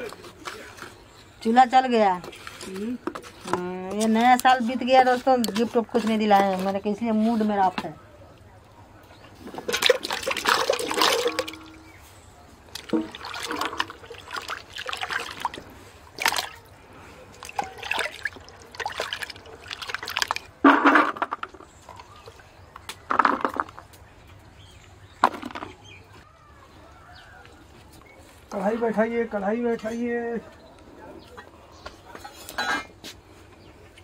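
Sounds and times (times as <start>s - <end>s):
hands sloshing water: 9.5s - 12.0s, 12.7s - 20.6s
vegetables splashing into water: 9.7s - 11.8s, 12.7s - 16.6s, 17.4s - 20.6s.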